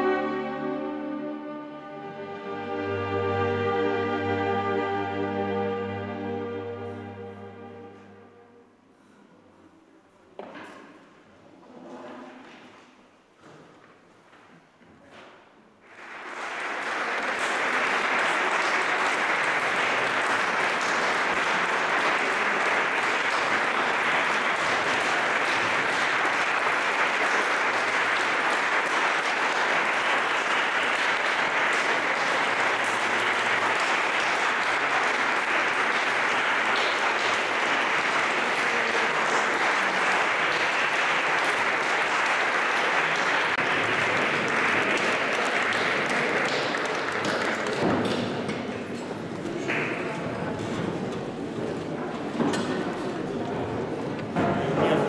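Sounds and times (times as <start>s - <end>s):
audience applauding: 15.8s - 50.7s.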